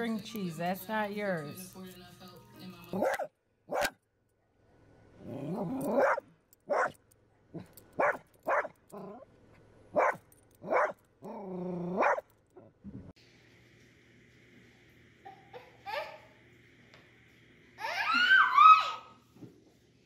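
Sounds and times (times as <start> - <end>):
dog growling barks: 2.9 - 4.0, 5.2 - 9.3, 9.9 - 12.2
small dog barking: 2.9 - 4.0, 5.9 - 7.0, 8.0 - 8.8, 9.9 - 11.0, 12.0 - 12.2.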